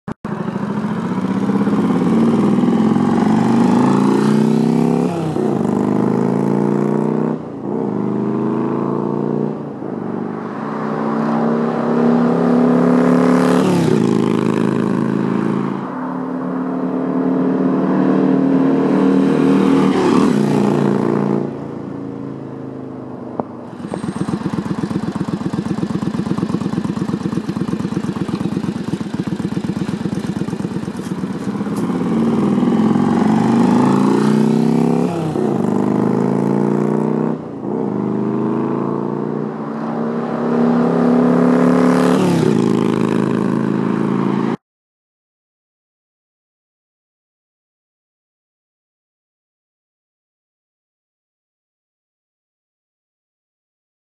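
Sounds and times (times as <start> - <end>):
motorcycle engine revving and idling: 0.3 - 10.3, 10.9 - 15.7, 23.5 - 44.6.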